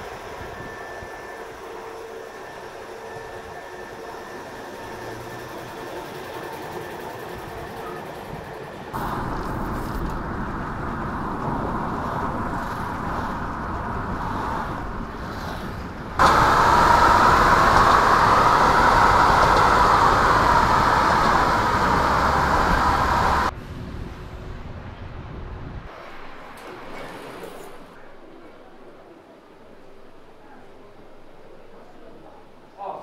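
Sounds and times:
car road noise rumble: 0:08.9 - 0:27.0.

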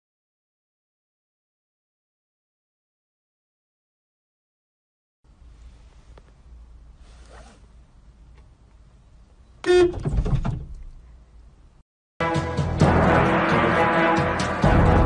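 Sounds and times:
low hum inside car: 0:05.3 - 0:11.8
car horn honk: 0:09.6 - 0:10.2.

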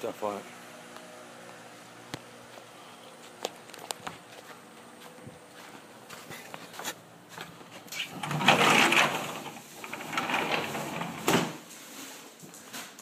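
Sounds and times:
door scraping open and shut: 0:07.8 - 0:11.7.

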